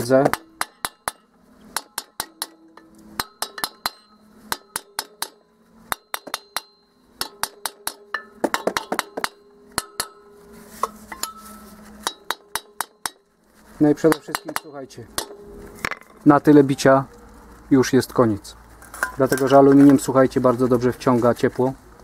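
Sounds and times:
metal hammer tapping on cast iron: 0:00.0 - 0:11.4, 0:12.0 - 0:13.2, 0:13.9 - 0:16.1.

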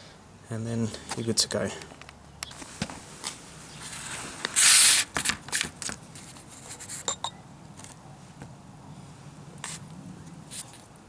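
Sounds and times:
rustling scrape on cardboard: 0:02.6 - 0:07.1, 0:10.5 - 0:10.9.

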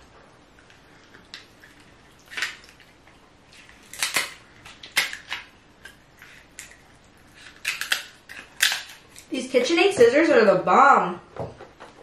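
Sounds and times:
scissors snipping crab shell: 0:07.4 - 0:09.3.

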